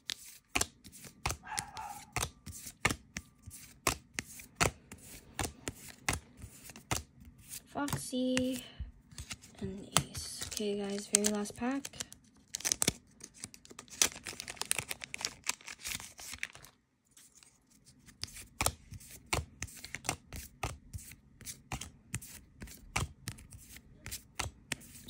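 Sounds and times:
cards flicking and clicking: 0:00.0 - 0:16.4, 0:18.0 - 0:25.0
foil pack tearing and rustling: 0:10.3 - 0:16.7.

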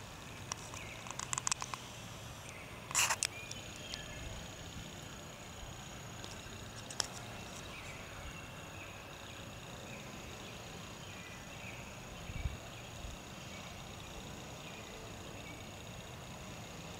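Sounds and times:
high insect trill: 0:00.0 - 0:16.9
sharp click: 0:00.4 - 0:01.8, 0:02.5 - 0:04.0.

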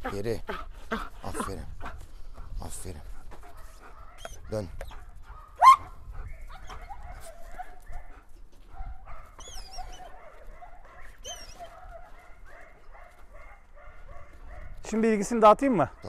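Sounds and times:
dog whining: 0:05.6 - 0:05.9, 0:09.4 - 0:10.1, 0:11.2 - 0:11.7.

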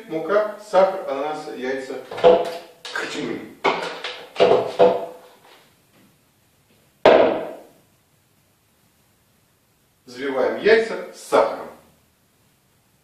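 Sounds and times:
knock on wooden tabletop: 0:02.1 - 0:02.6, 0:04.4 - 0:05.2, 0:07.1 - 0:07.6.

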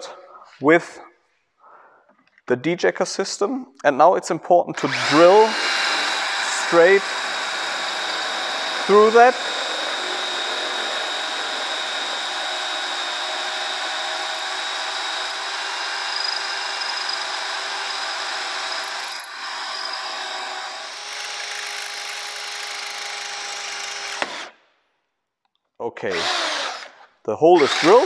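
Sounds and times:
cordless drill drilling: 0:04.8 - 0:24.6, 0:26.1 - 0:28.0.

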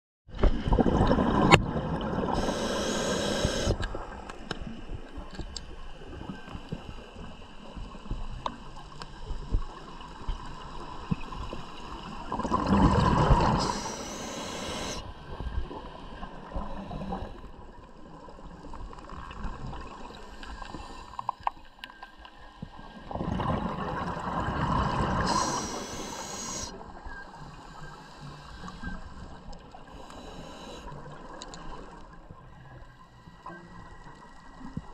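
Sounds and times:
gurgling exhaled bubbles: 0:00.5 - 0:03.8, 0:12.0 - 0:15.0, 0:23.0 - 0:26.7
regulator hiss: 0:02.3 - 0:03.8, 0:13.5 - 0:15.0, 0:25.2 - 0:26.8, 0:29.9 - 0:30.9
faint clicks: 0:29.5 - 0:32.1.

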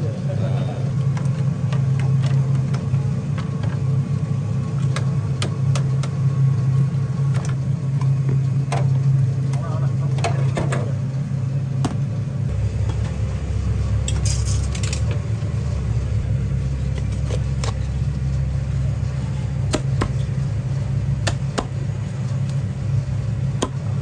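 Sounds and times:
steady low hum: 0:00.0 - 0:24.0
utensils clattering: 0:14.1 - 0:15.2
cleaver chopping on block: 0:19.7 - 0:20.2, 0:21.2 - 0:21.8.

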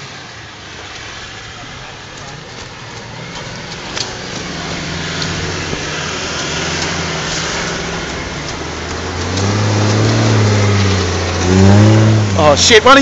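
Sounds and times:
off-road vehicle engine climbing: 0:00.0 - 0:13.0
stones clicking under tyres: 0:00.8 - 0:13.0.

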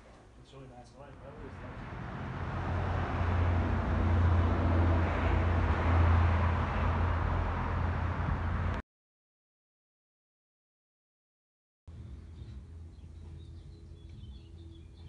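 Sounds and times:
outdoor rumble with hiss: 0:00.0 - 0:08.8, 0:11.9 - 0:15.0.

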